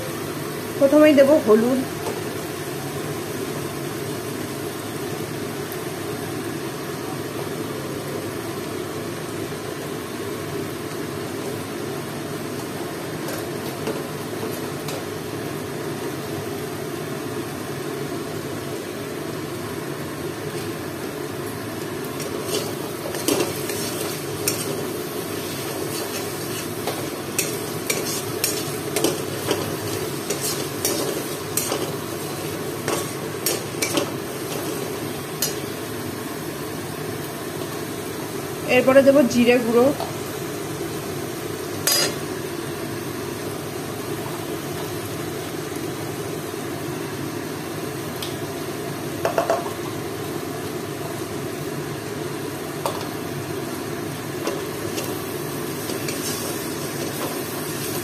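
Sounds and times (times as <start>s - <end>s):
masala sizzling in pan: 0.0s - 58.0s
metal spatula scraping pan: 25.8s - 32.0s.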